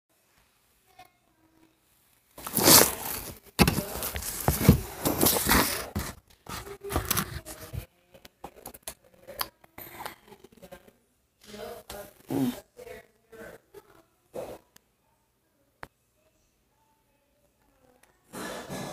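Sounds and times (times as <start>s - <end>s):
rustling scraping handling noise: 2.4s - 7.9s.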